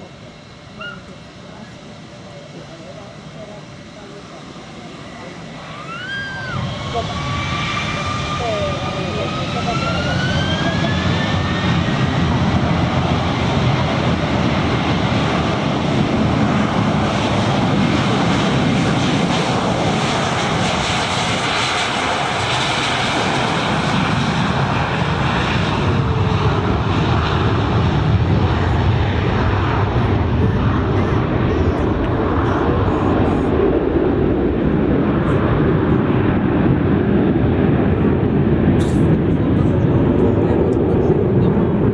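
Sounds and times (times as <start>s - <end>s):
engine whine spooling up: 0.0s - 41.9s
jet engines roaring at takeoff: 0.0s - 41.9s.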